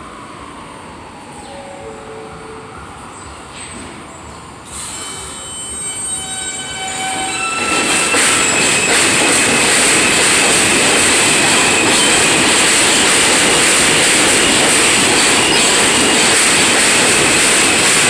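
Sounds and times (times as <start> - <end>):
subway train motor whine: 0.0 - 18.0
train wheels on rail: 2.8 - 18.0
high wheel squeal: 4.8 - 10.4.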